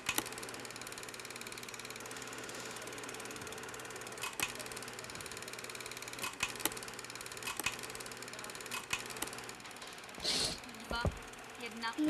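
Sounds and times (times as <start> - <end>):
sharp projector clicks: 0.0 - 2.0, 3.8 - 9.9
film projector clattering: 0.0 - 10.2, 10.8 - 12.0.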